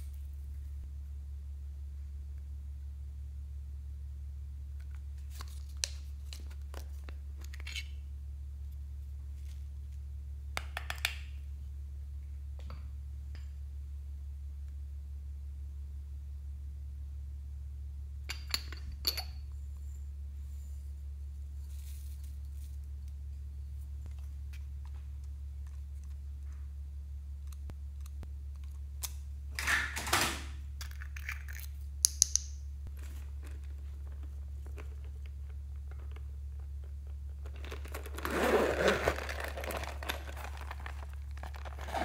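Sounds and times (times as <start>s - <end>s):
steady low hum: 0.0s - 10.6s, 11.3s - 29.6s.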